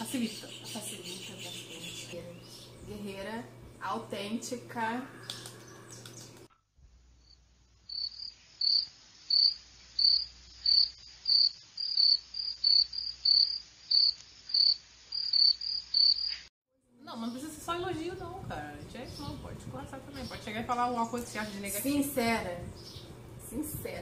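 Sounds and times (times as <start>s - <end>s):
crickets chirping: 7.2s - 16.5s.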